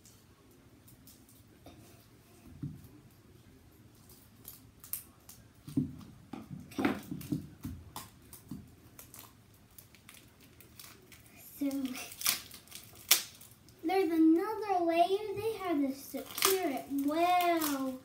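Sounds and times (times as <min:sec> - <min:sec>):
hands peeling plastic wrapping: 0:04.0 - 0:05.8, 0:06.6 - 0:14.4, 0:15.2 - 0:18.0
small clicks taps and rustles: 0:04.0 - 0:11.9.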